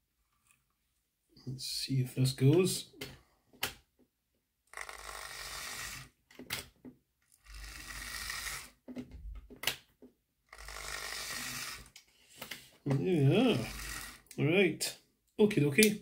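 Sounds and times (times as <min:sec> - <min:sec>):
model train motor whirring: 0:04.7 - 0:06.2, 0:07.3 - 0:08.8, 0:10.5 - 0:12.0, 0:13.4 - 0:14.4.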